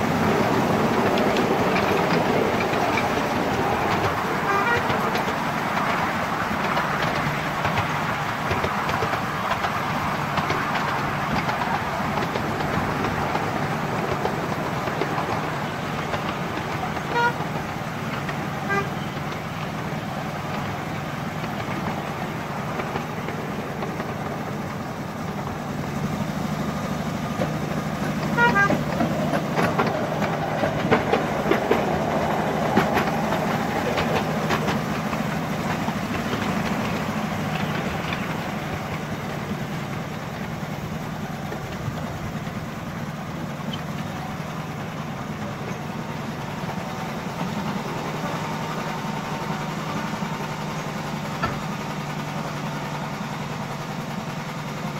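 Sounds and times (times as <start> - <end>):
miniature locomotive running: 0.0 - 54.9
wheels clicking over rail joints: 0.0 - 54.9
locomotive horn toots: 3.8 - 5.4, 16.8 - 20.0, 28.1 - 34.6.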